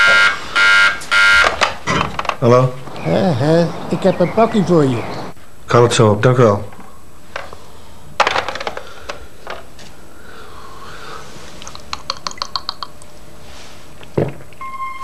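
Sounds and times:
intercom handset clattering onto cradle: 8.2 - 8.8.

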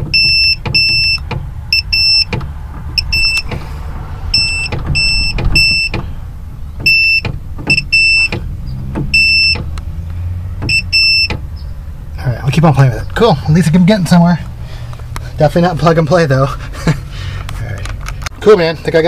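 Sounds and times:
multimeter buzzer beeps: 0.1 - 2.3, 3.0 - 3.4, 4.4 - 5.9, 10.7 - 11.3.

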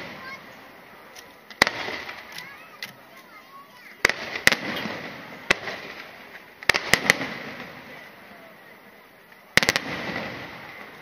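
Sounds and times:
fireworks shells bursting: 1.2 - 7.9.

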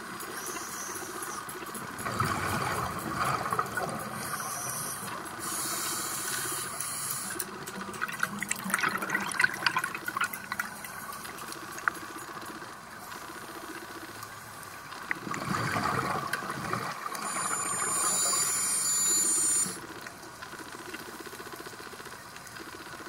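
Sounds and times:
underwater bubbles gurgling: 1.9 - 5.2, 7.6 - 12.6, 14.8 - 18.4.

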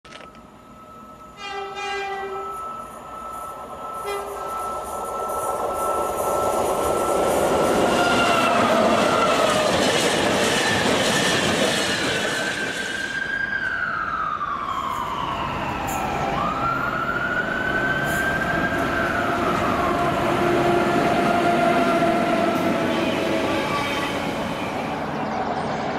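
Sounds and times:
train horn: 1.3 - 2.8, 4.0 - 4.7, 7.8 - 9.7, 19.2 - 24.5.

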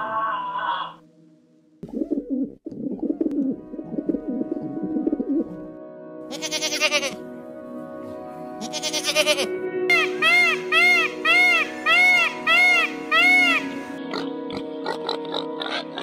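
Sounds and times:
background music: 0.0 - 16.0
pigeon cooing: 1.8 - 5.6, 10.0 - 16.0
goat bleating: 6.3 - 7.2, 8.6 - 9.5.

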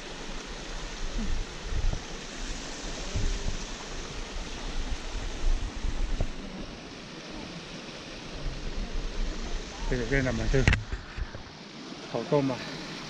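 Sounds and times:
wind buffeting microphone: 1.1 - 6.8.

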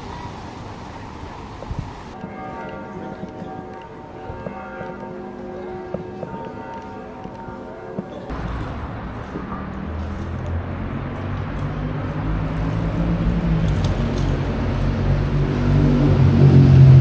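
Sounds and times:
street traffic: 0.0 - 17.0
vehicle engine running: 8.3 - 17.0.

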